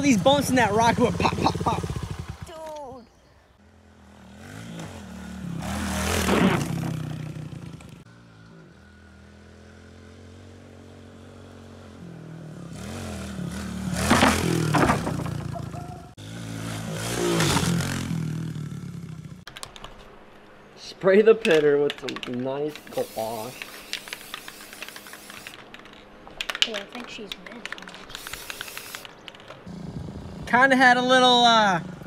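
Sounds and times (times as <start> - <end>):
motorbike engine revving: 0.0 - 2.6, 3.6 - 19.5, 29.7 - 32.0.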